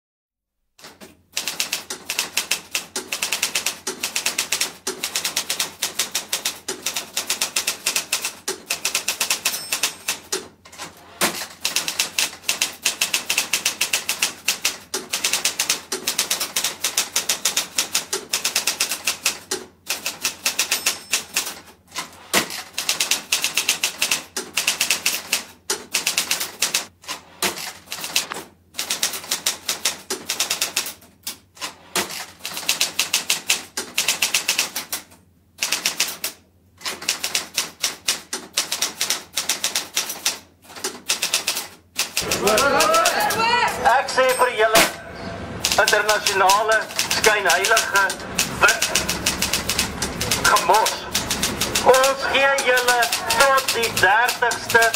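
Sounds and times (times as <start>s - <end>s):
typewriter keys clacking: 0.8s - 26.9s, 27.5s - 43.5s, 45.6s - 54.9s.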